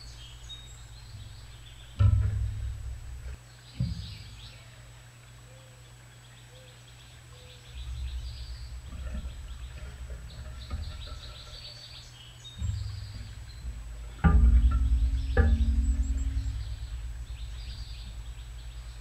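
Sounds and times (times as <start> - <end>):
songbirds chirping: 0.0 - 19.0
low rumble: 7.7 - 19.0.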